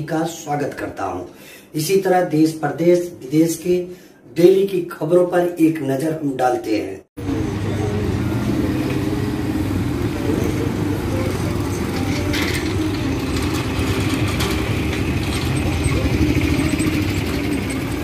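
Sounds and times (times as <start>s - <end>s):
background voices: 7.2s - 18.0s
traffic engines rumbling: 7.2s - 18.0s.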